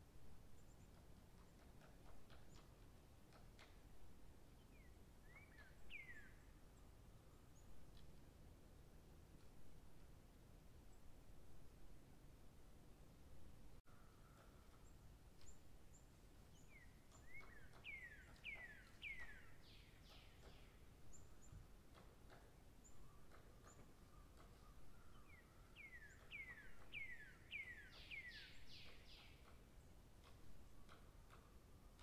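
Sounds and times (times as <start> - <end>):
songbird whistling: 5.2 - 6.4, 16.7 - 20.7, 24.6 - 29.4.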